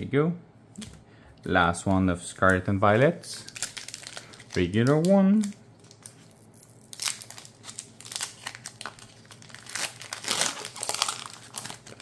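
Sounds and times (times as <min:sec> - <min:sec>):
foil wrapper crinkling: 0:03.2 - 0:12.0.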